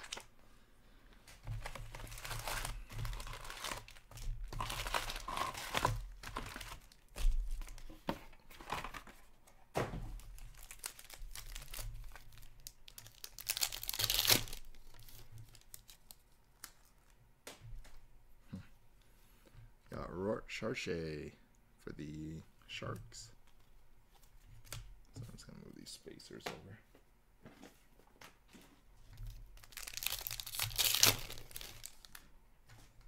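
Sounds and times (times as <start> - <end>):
plastic wrappers tearing and crinkling: 0.0 - 0.3, 1.4 - 7.9, 10.2 - 17.2, 29.2 - 32.3.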